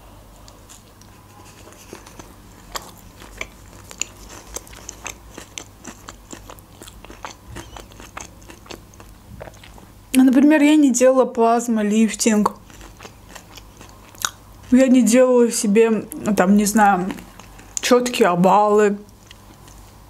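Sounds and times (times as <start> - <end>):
close chewing with mouth clicks: 0.4 - 10.0, 12.3 - 14.9, 16.1 - 17.9, 19.0 - 20.0.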